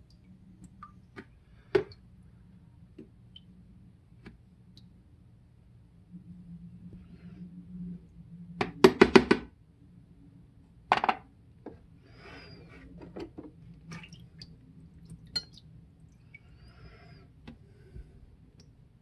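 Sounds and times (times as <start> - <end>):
liquid sloshing and dripping: 12.4 - 18.8.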